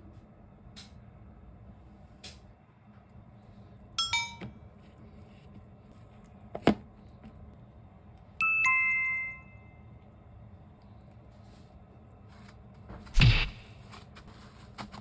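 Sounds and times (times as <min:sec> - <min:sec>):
sparkling falling bell tones: 0:08.4 - 0:09.8
two-note ding-dong chime: 0:08.4 - 0:09.8.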